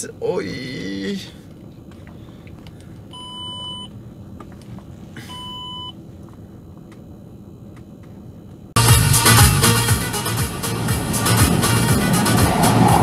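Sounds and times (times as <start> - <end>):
car cabin engine hum: 0.0 - 13.0
short electronic beeps: 5.3 - 5.9.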